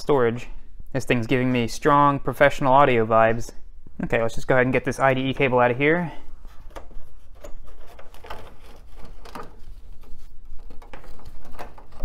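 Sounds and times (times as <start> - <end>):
cable connector clicks and scrapes: 6.5 - 12.0.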